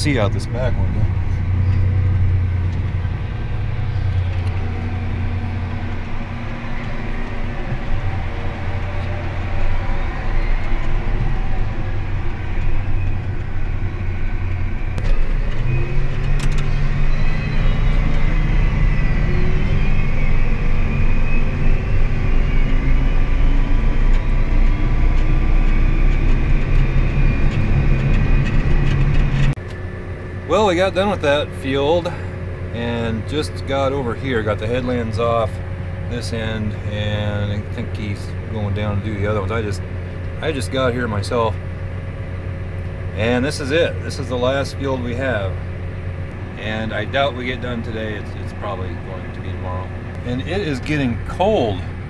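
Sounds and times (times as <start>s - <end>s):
faint high whine: 0.0s - 29.0s
tractor engine running: 0.0s - 52.0s.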